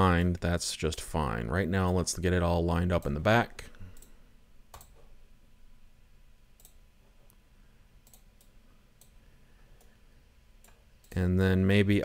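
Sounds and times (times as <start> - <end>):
low room hum: 0.0 - 12.0
computer mouse clicks: 3.9 - 5.1, 6.6 - 7.4, 8.0 - 9.2.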